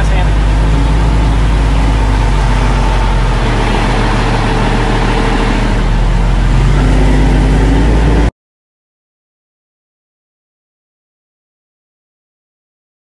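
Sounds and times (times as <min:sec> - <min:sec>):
road noise: 0:00.0 - 0:08.3
vehicle engine droning: 0:00.0 - 0:08.3.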